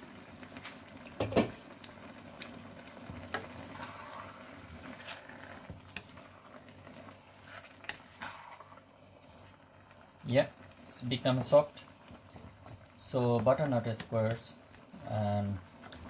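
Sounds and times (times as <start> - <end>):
low sizzle: 0.0 - 16.0
wooden spatula scraping a wok: 3.3 - 9.4.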